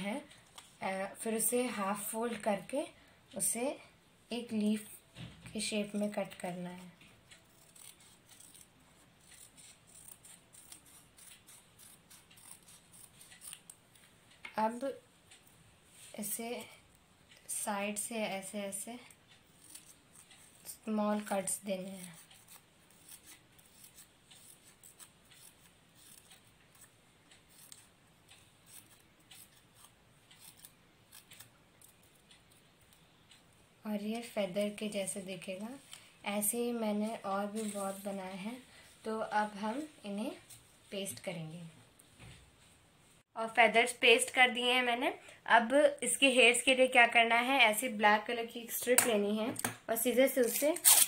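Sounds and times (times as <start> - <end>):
scissors snipping paper: 5.9 - 13.8, 19.6 - 27.9, 28.6 - 33.0.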